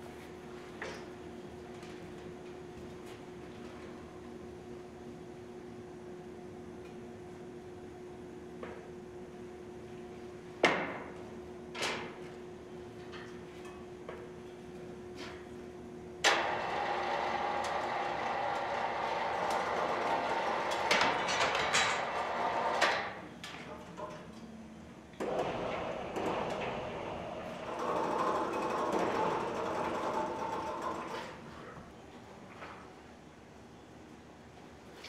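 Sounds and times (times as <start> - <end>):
machine running: 16.3 - 23.0, 25.2 - 31.1.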